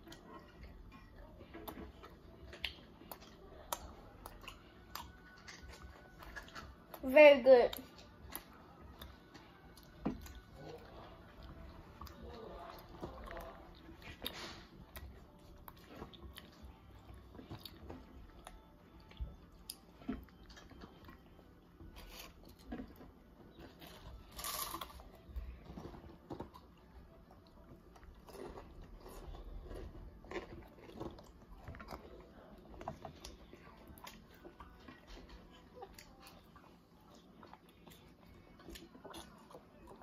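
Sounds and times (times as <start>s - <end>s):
potato chips crunching: 23.8s - 25.0s, 28.2s - 31.4s.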